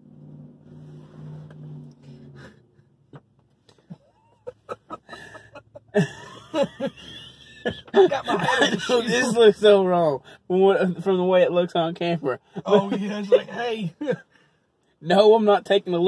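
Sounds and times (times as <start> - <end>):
men laughing: 3.8 - 9.5, 12.5 - 14.3.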